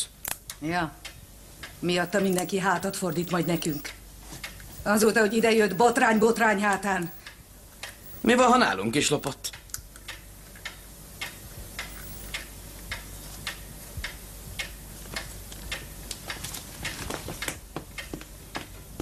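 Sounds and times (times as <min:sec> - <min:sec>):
clock ticking: 0:01.0 - 0:18.2.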